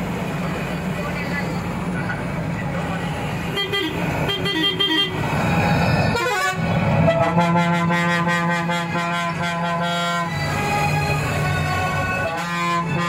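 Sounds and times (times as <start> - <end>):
vehicle engine and road noise: 0.0 - 13.0
long steady horn-like tone: 6.1 - 13.0.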